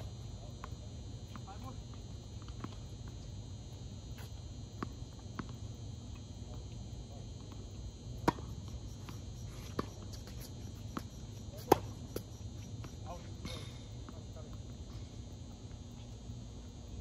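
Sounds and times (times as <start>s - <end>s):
low hum: 0.0s - 17.0s
tennis ball bouncing: 4.2s - 5.6s, 8.2s - 14.6s
racquet hitting tennis ball: 8.2s - 13.2s.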